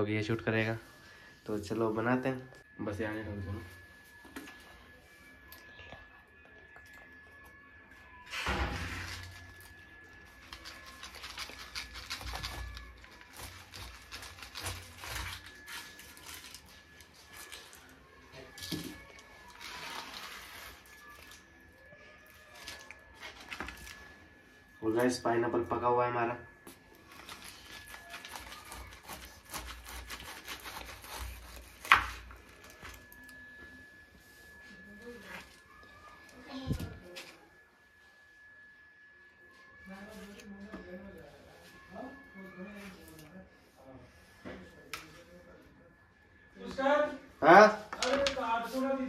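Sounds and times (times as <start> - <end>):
knife cutting pineapple: 10.9 - 16.6, 27.3 - 33.0.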